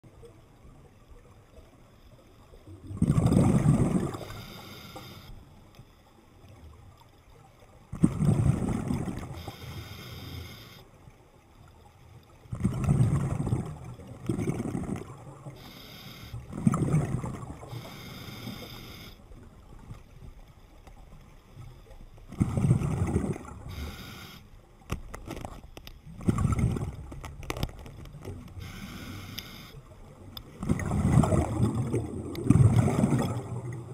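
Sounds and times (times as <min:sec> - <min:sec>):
diver exhaling bubbles: 0:02.9 - 0:04.6, 0:08.0 - 0:09.4, 0:12.5 - 0:15.6, 0:16.4 - 0:18.8, 0:22.3 - 0:24.3, 0:30.6 - 0:33.9
regulator inhale hiss: 0:04.2 - 0:05.5, 0:09.4 - 0:11.0, 0:15.6 - 0:16.5, 0:17.7 - 0:19.2, 0:23.7 - 0:24.6, 0:28.6 - 0:29.9.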